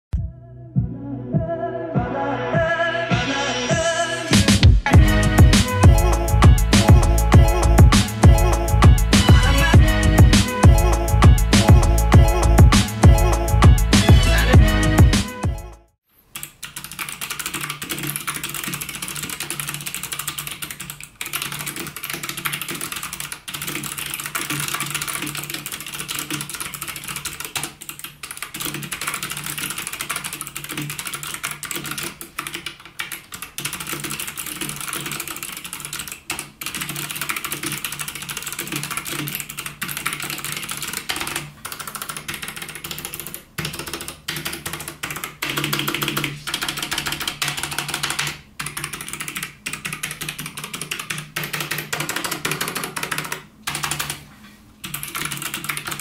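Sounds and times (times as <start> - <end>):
mechanical keyboard typing: 16.3 - 56.0.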